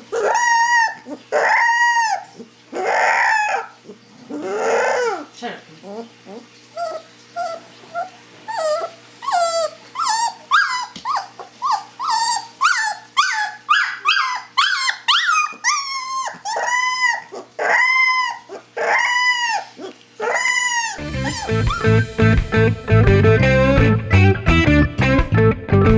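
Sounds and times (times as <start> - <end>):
puppy howling and yelping: 0.0 - 22.1
electric guitar music: 21.0 - 25.9.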